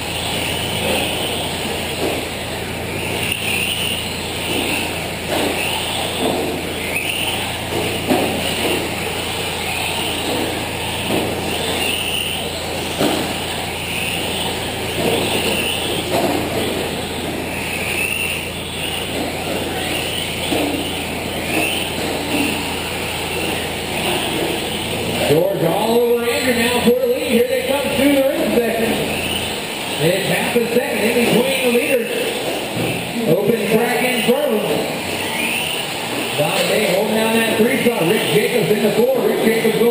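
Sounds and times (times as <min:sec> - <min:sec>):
tyre and drivetrain noise: 0:00.0 - 0:39.9
sharp knocks of trucks landing: 0:00.1 - 0:09.4, 0:10.0 - 0:17.6.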